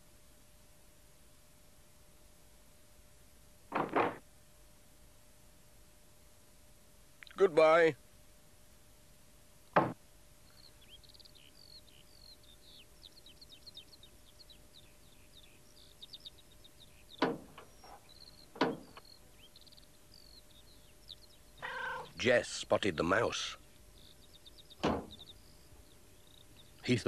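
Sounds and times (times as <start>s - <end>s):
wooden door shutting: 3.7s - 4.2s, 9.8s - 10.0s, 17.2s - 17.7s, 18.5s - 19.0s, 24.8s - 25.2s
van doors opening knocks: 9.8s - 10.0s, 17.2s - 17.7s, 18.5s - 19.0s, 24.8s - 25.2s
faint bird chirping: 10.4s - 27.0s.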